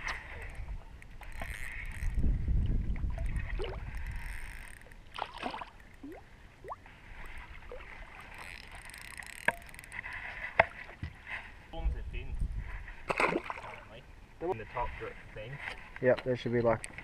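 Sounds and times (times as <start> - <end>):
fishing reel rumble: 0.0 - 6.2, 7.0 - 10.4
water lapping: 0.0 - 11.7.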